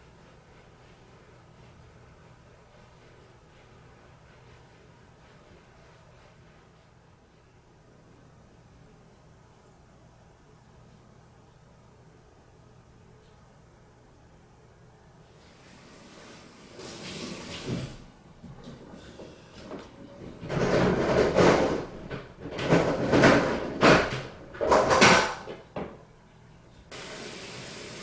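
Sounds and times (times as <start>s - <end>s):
irregular knocks: 20.3s - 26.0s.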